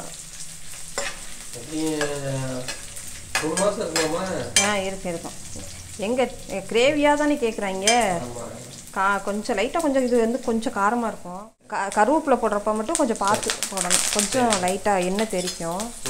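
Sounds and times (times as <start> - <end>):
spices sizzling in hot oil: 0.0 - 16.0.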